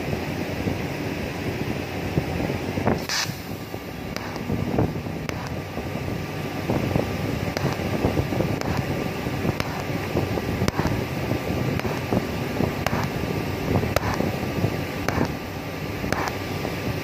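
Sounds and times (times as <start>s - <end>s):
welding arc crackling hiss: 1.8s - 17.0s
sharp welding clicks: 3.0s - 4.6s, 5.2s - 5.7s, 7.4s - 16.6s.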